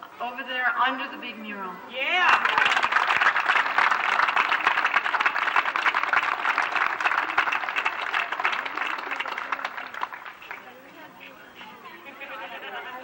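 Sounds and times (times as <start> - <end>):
crowd applauding: 2.2 - 10.8.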